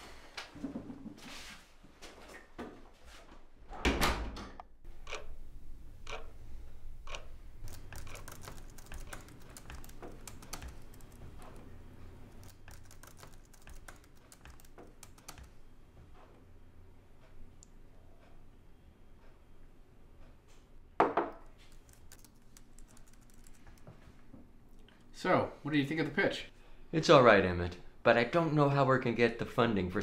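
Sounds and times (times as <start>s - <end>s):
door shutting with a thud: 3.8s - 4.6s
typing on laptop keyboards: 7.1s - 11.7s, 12.3s - 15.6s, 21.7s - 23.8s.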